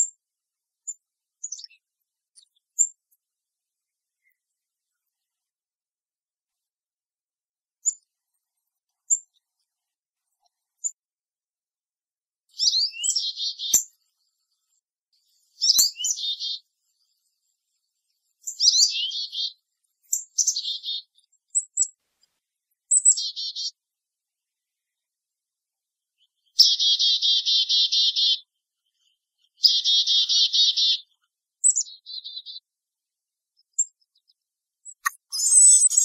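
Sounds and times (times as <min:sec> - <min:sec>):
chickadee calling: 0:12.5 - 0:13.8, 0:15.6 - 0:16.6, 0:18.4 - 0:19.6, 0:20.4 - 0:21.1, 0:23.0 - 0:23.8, 0:26.5 - 0:28.5, 0:29.4 - 0:32.6, 0:34.9 - 0:36.0.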